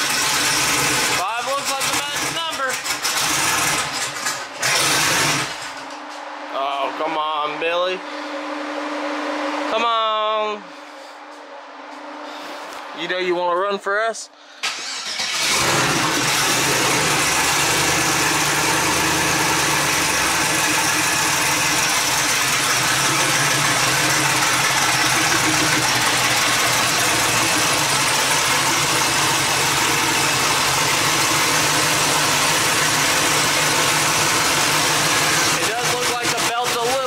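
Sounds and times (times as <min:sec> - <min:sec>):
car engine idling: 0:00.0 - 0:06.5, 0:14.6 - 0:37.0.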